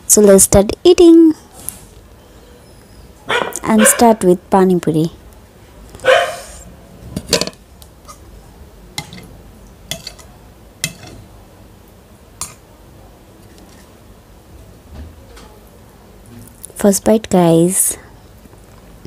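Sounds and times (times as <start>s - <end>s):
metal spoon clinking against bowl: 9.9s - 11.2s.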